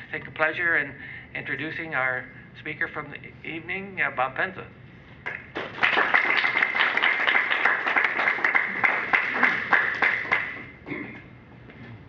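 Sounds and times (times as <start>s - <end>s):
audience applauding: 5.3s - 10.8s.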